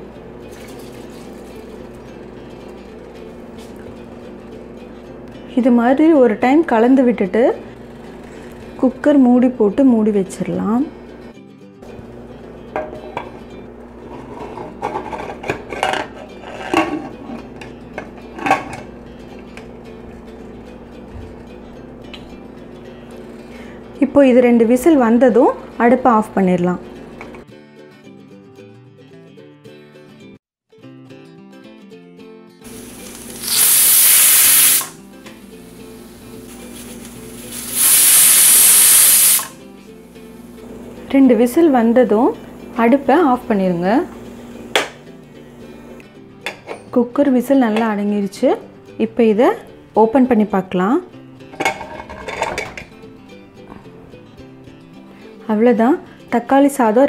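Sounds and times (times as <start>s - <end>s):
plucked-string background music: 0.0s - 57.0s
metal lid scraping on pot rim: 14.0s - 17.7s, 51.5s - 52.9s
steam sputtering: 32.7s - 35.0s, 36.4s - 39.6s
pressure cooker whistle hiss: 32.7s - 39.6s
metal clanks: 51.5s - 52.9s.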